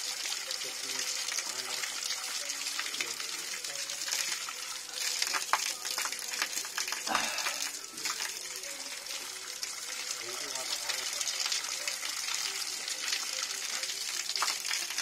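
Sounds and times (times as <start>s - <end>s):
water splashing on concrete: 1.1s - 8.6s, 10.6s - 15.0s.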